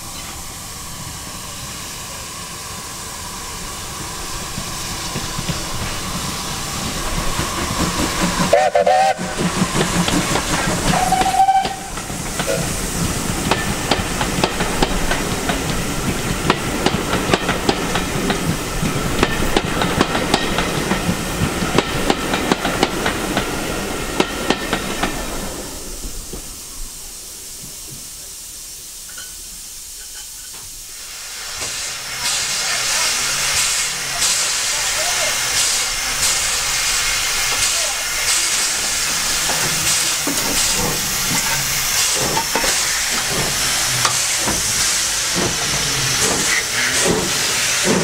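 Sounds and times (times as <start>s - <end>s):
steam hiss: 0.0s - 48.0s
train wheels clicking on rails: 2.4s - 26.7s, 29.0s - 48.0s
steam whistle toot: 8.5s - 9.4s, 10.9s - 12.0s.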